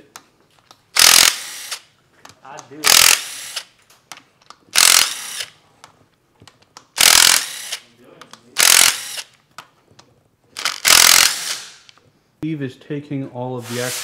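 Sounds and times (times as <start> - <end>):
power ratchet spinning bolts: 1.0 - 1.8, 2.8 - 3.6, 4.8 - 5.5, 7.0 - 7.8, 8.6 - 9.3, 10.6 - 11.6.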